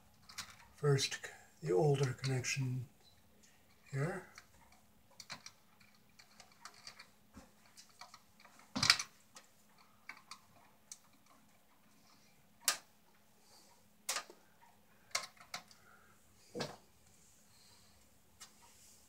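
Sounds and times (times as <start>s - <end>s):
rustling of wiring: 0.0s - 0.9s, 3.4s - 13.3s, 13.9s - 15.9s
faint steady hum: 0.0s - 19.0s.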